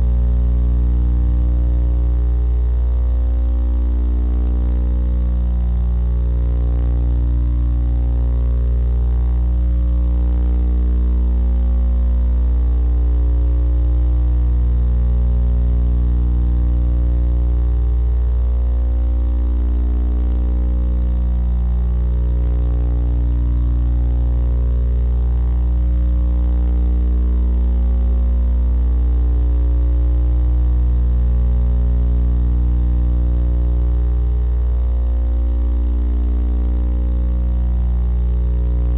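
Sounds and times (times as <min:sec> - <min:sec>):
low electrical hum: 0:00.0 - 0:38.9.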